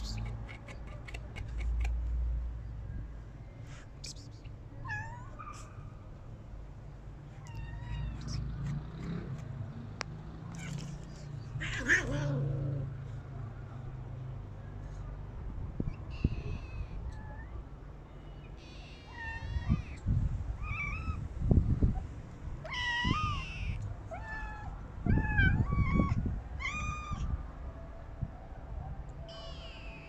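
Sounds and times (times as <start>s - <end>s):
cats meowing: 7.4s - 8.7s, 10.5s - 12.7s, 18.6s - 20.0s, 22.6s - 27.3s.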